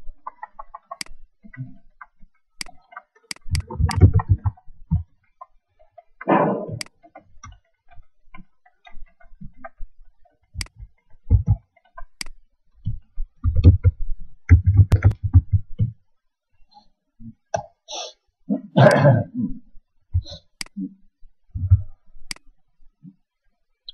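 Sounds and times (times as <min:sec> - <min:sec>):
laptop keyboard typing: 0:13.4 - 0:15.6.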